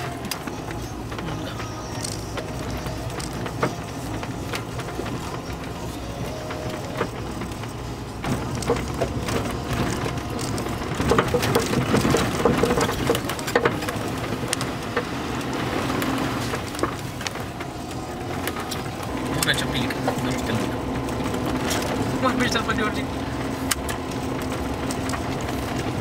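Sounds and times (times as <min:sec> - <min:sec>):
vehicle body rattles and knocks: 0:00.0 - 0:26.0
vehicle engine humming low: 0:00.0 - 0:26.0.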